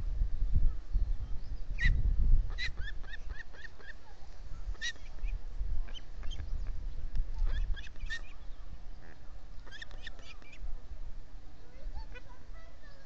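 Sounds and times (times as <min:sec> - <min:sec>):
wind rumble on microphone: 0:00.0 - 0:13.0
birds chirping sharply: 0:00.7 - 0:10.7.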